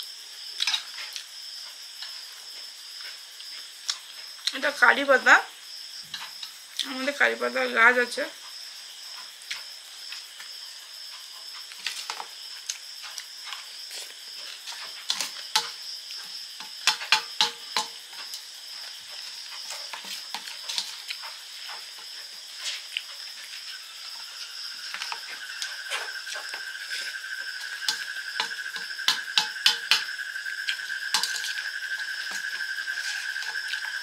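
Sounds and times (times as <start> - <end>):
cricket trill: 0.0 - 34.0
chewing crunchy food: 11.1 - 17.1, 18.1 - 21.9, 22.5 - 28.1
spoon scraping steel plate: 31.1 - 34.0.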